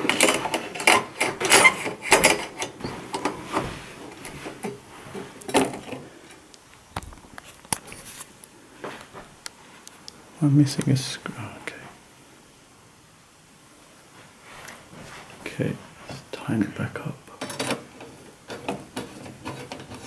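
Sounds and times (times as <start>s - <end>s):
metal clanks and scrapes: 0.0s - 6.0s, 17.4s - 20.0s.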